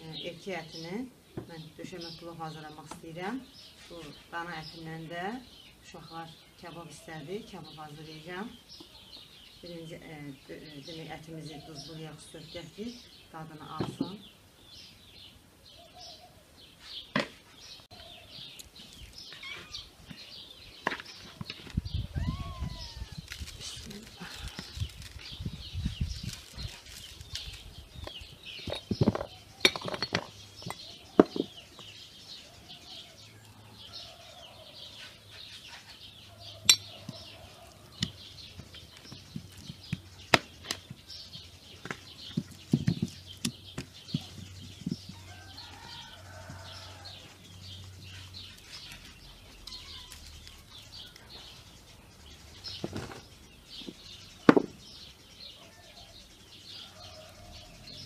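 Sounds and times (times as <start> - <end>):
small birds chirping: 0.0 - 58.0
farmyard animal calls: 17.7 - 20.6, 43.7 - 51.6.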